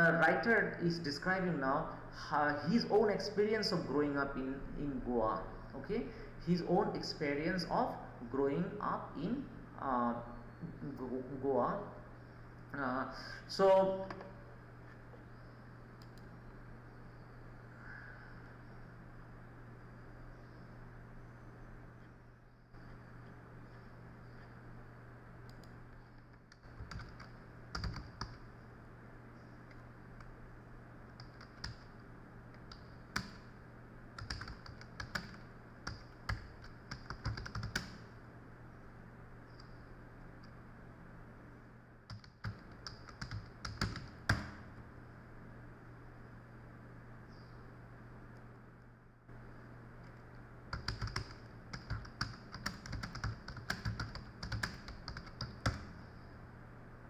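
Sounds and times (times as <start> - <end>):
steady low hum: 0.0 - 57.0
keyboard typing: 25.5 - 28.4, 31.1 - 31.9, 32.5 - 33.5, 34.2 - 38.0, 42.1 - 44.6, 50.1 - 56.0.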